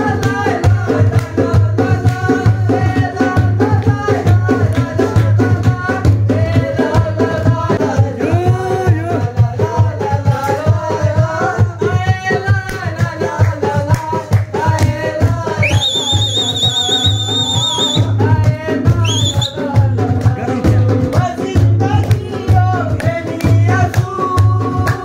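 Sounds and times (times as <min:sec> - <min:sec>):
men singing together: 0:00.0 - 0:25.0
hand-clapping: 0:01.1 - 0:02.4, 0:03.7 - 0:05.4, 0:12.6 - 0:16.2, 0:20.2 - 0:25.0
shrill whistle-like tone: 0:15.6 - 0:18.2, 0:19.0 - 0:19.6.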